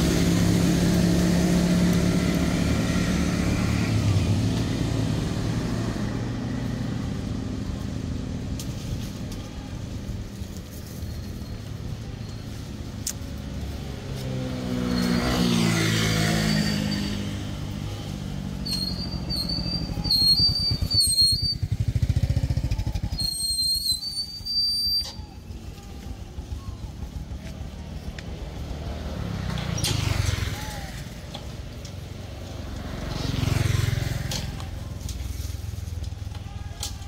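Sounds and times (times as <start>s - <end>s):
vehicles passing on road: 0.0s - 37.0s
high thin whistling tone: 18.6s - 21.8s, 23.2s - 25.5s.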